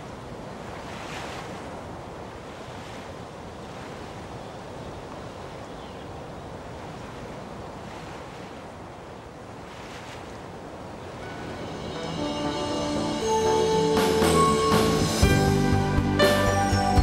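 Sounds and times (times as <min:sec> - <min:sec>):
sea water rushing: 0:00.0 - 0:17.0
music: 0:11.2 - 0:17.0.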